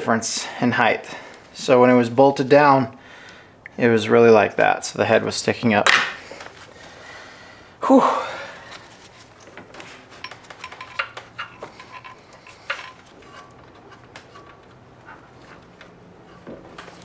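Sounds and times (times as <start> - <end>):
person exhaling whew: 7.8 - 8.8
hand tools clinking: 9.2 - 17.0.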